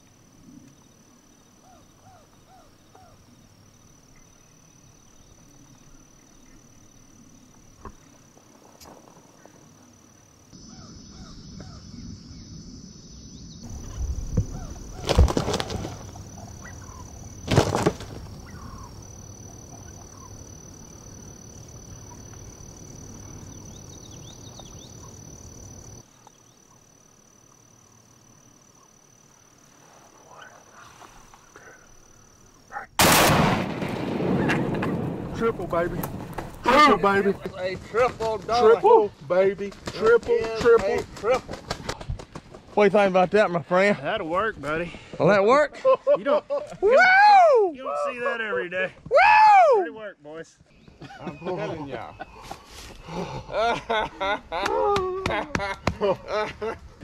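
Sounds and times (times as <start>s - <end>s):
shotgun blasts: 33.0s - 36.3s.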